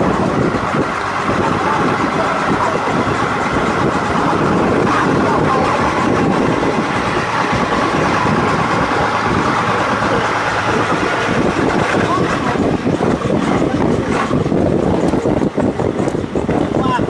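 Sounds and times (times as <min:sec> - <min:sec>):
boat engine running: 0:00.0 - 0:17.0.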